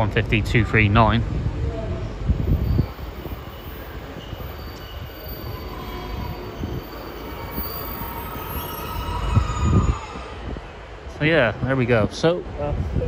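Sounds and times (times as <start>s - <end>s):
diesel train rumble: 0.0s - 12.6s
faint thin squeal: 2.4s - 10.8s.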